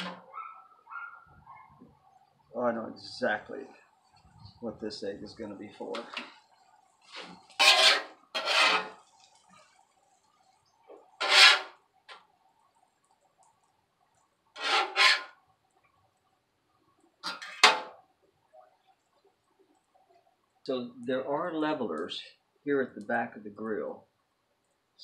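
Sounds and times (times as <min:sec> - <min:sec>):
metal spatula scraping griddle: 0:00.0 - 0:00.2, 0:07.0 - 0:09.2, 0:11.2 - 0:11.8, 0:14.6 - 0:15.4, 0:17.2 - 0:18.0.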